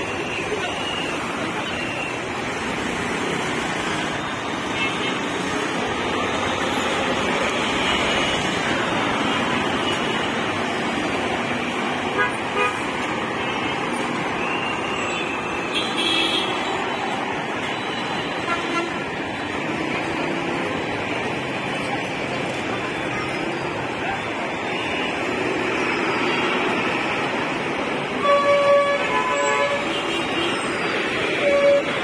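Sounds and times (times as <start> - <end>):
city street traffic: 0.0 - 32.0
horns honking: 12.0 - 13.9, 17.6 - 19.1, 28.1 - 32.0.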